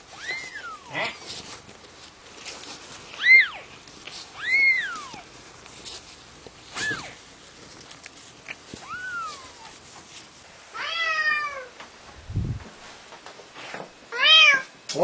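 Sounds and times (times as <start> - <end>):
adult cat meowing: 0.1 - 1.2, 4.4 - 5.2, 8.8 - 9.7, 10.7 - 11.7, 14.1 - 14.7
kitten mewing: 0.1 - 1.3, 3.2 - 3.7, 4.3 - 5.3, 6.7 - 7.2, 8.4 - 9.8.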